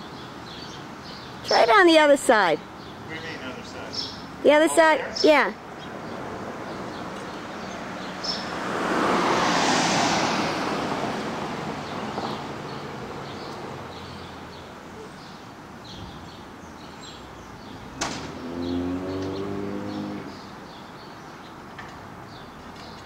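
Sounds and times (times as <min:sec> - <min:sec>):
vehicle passing: 0:01.5 - 0:14.7, 0:17.0 - 0:20.8.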